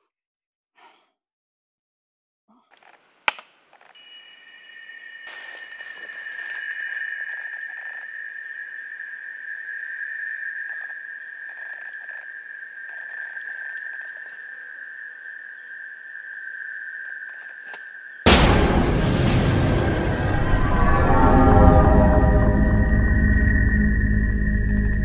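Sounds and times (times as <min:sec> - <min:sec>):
faint chirps: 0:02.5 - 0:18.1
high-pitched insect drone: 0:04.0 - 0:16.8, 0:21.0 - 0:25.0.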